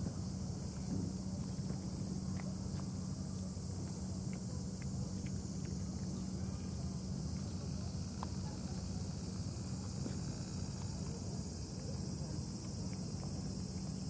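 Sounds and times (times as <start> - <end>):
faint small ticks: 3.8 - 6.2.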